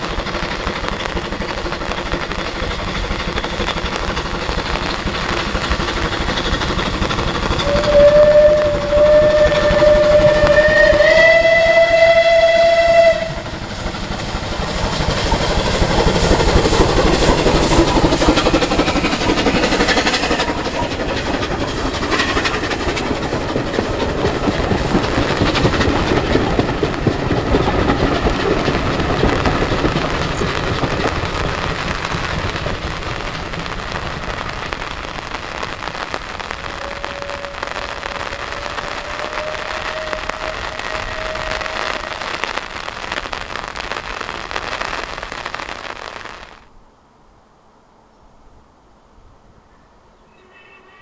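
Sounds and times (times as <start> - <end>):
steam train running past: 0.0 - 46.8, 49.2 - 51.0
wind: 0.0 - 51.0
rain: 24.3 - 50.3.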